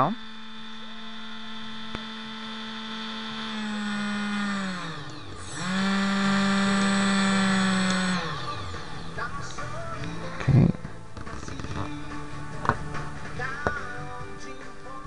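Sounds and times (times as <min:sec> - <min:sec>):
small electric motor whining: 0:00.0 - 0:12.0.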